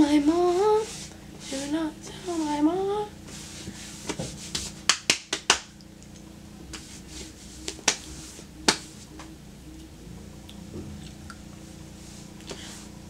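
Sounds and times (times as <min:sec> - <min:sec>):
hands brushing fabric pants: 0:03.3 - 0:05.1, 0:06.7 - 0:09.1.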